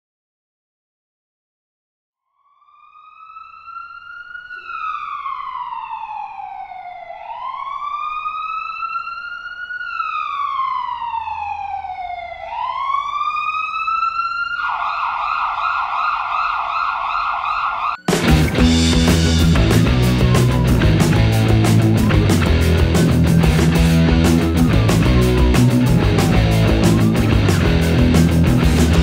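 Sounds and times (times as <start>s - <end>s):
ambulance siren: 2.2s - 29.0s
loud rock music: 18.0s - 29.0s.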